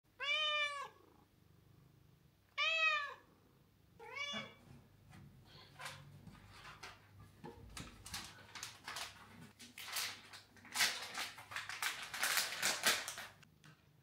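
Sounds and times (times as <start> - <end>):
cat meowing: 0.2 - 1.1, 2.5 - 3.3, 4.0 - 4.6.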